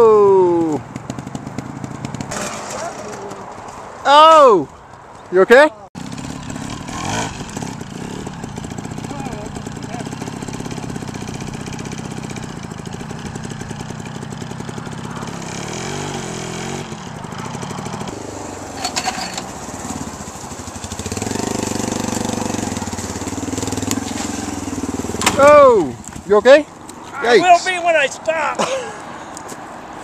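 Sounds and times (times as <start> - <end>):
second motorcycle engine: 0.1 - 3.6, 6.0 - 27.4
motorcycle engine at low revs: 0.5 - 3.2, 6.0 - 26.3.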